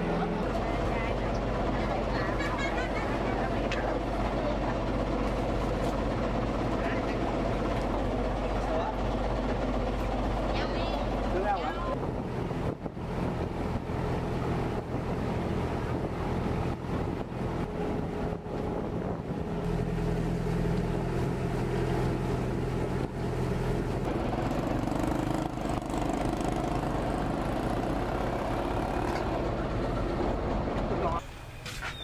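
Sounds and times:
ferry engine running: 0:00.0 - 0:32.0.

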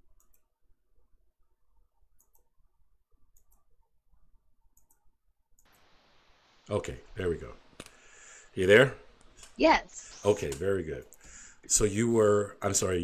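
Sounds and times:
steady hiss: 0:05.7 - 0:12.4.

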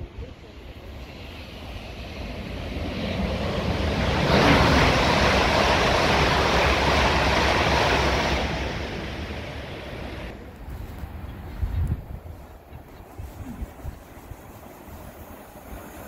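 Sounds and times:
electric train passing: 0:00.0 - 0:10.5, 0:14.2 - 0:16.0.

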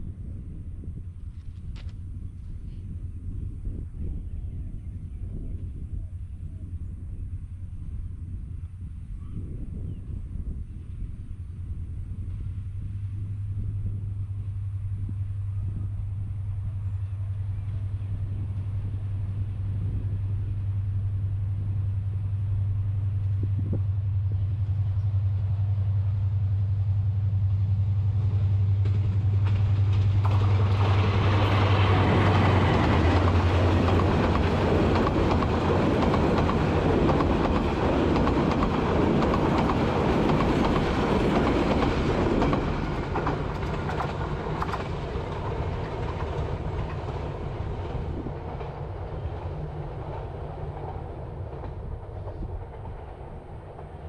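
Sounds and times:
diesel locomotive engine hum: 0:00.0 - 0:54.0
train wheels rattling: 0:27.5 - 0:54.0.

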